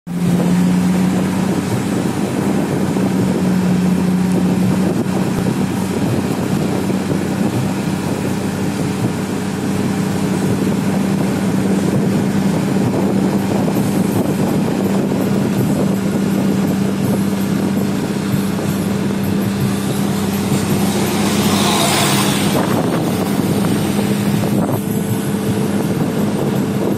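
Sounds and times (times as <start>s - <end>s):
tyre and wind noise: 0.1s - 26.9s
vehicle engine droning: 0.1s - 26.9s.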